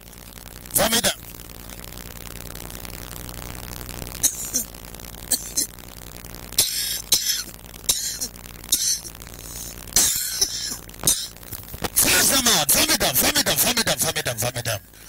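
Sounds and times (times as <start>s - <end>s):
people coughing and retching: 4.2s - 4.7s, 5.3s - 5.7s, 6.6s - 9.1s, 10.0s - 11.4s.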